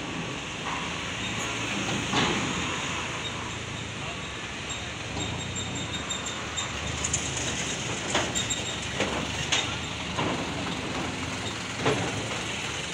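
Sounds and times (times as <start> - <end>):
metal clanks and knocks: 0.0 - 2.9, 5.1 - 12.9
diesel truck engines running: 0.0 - 12.9.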